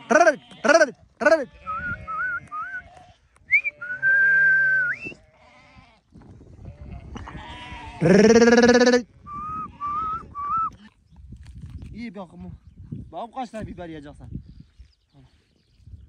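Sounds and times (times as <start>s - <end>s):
sheep bleating: 0.0s - 4.0s, 5.2s - 6.0s, 6.7s - 10.1s.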